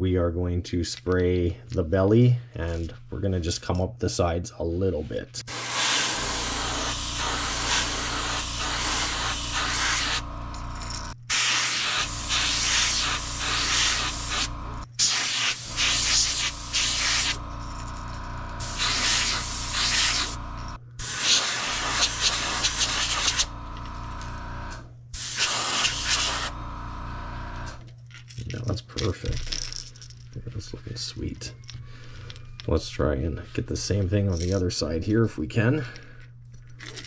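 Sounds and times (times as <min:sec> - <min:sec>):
airbrush spraying hiss: 0:05.5 - 0:10.2, 0:11.3 - 0:17.4, 0:18.6 - 0:20.4, 0:21.0 - 0:23.5, 0:25.2 - 0:26.6
low hum: 0:06.2 - 0:11.2, 0:16.6 - 0:18.8, 0:19.4 - 0:21.0, 0:22.5 - 0:25.1.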